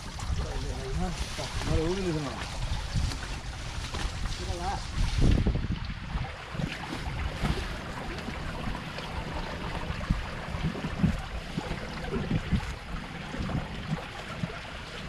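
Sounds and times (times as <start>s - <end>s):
wet fishing net rustling: 0.0s - 5.6s, 6.5s - 9.3s
water splashing: 0.0s - 15.0s
wind rumble on microphone: 0.0s - 15.0s.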